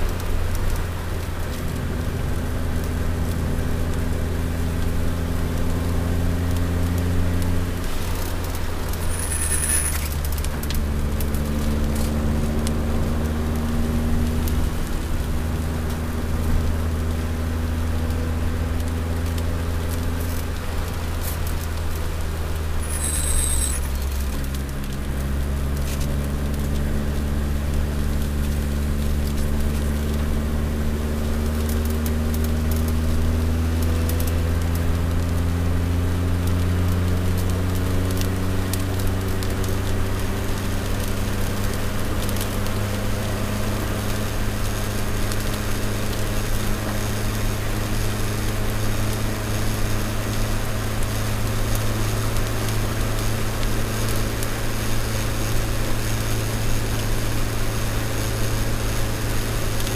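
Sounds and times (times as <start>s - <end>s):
car engine from inside cabin: 0.0s - 52.5s
high-pitched tyre squeal: 8.9s - 10.2s, 22.8s - 24.0s.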